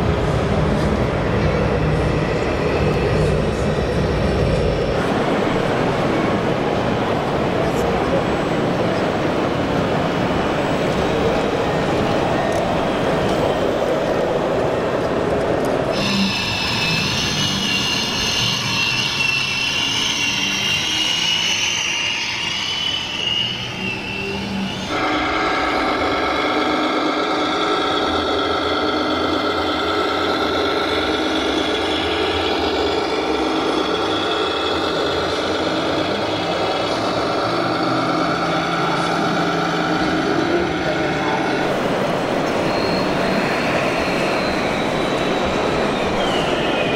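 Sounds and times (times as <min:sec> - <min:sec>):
model truck motor whine: 0:24.9 - 0:41.8.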